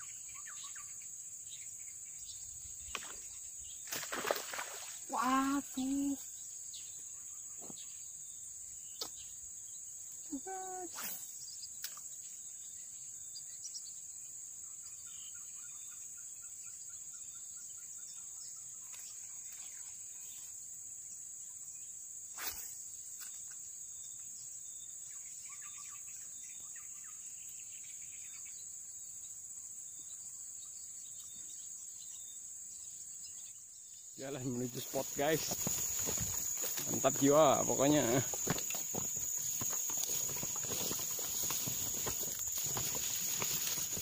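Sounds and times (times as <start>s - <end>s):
insects droning: 0.0s - 44.0s.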